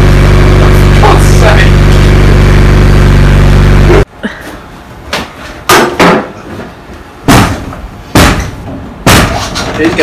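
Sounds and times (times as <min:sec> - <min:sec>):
loud droning hum: 0:00.0 - 0:05.1
heavy thumps on car door: 0:07.3 - 0:09.4.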